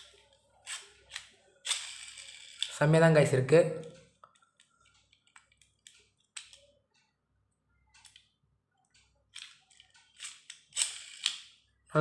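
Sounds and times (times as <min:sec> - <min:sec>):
faint plastic clicks: 0:03.8 - 0:11.5.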